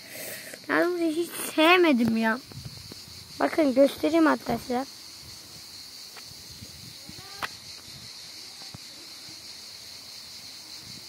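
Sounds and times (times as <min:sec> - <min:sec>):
high-pitched hiss: 0:00.0 - 0:11.0
faint voice: 0:07.0 - 0:07.5.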